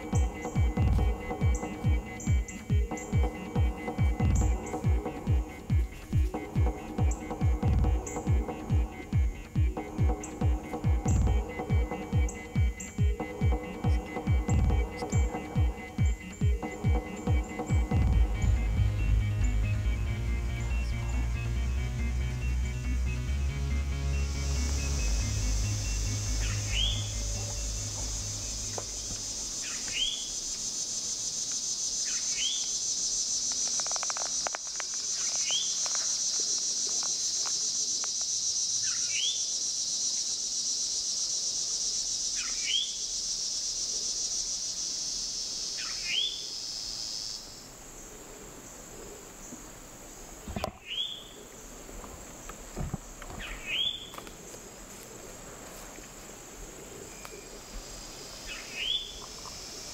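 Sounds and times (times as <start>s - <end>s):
bird downward-slurred call: 0.0s - 23.5s, 24.1s - 30.5s, 32.0s - 33.1s, 45.2s - 47.4s
high insect chorus: 0.0s - 59.9s.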